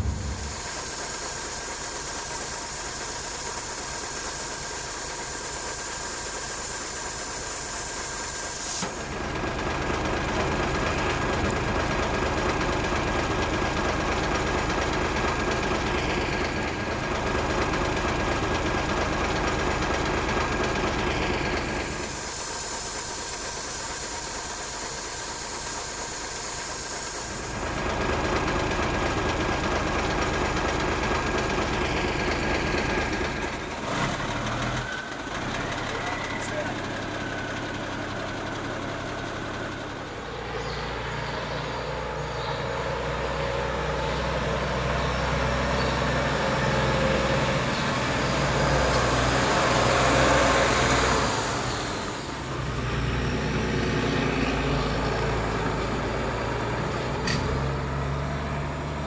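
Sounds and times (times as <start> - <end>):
air hissing from tyre valve: 0.0 - 9.2, 21.0 - 28.1
truck engine running: 0.0 - 59.0.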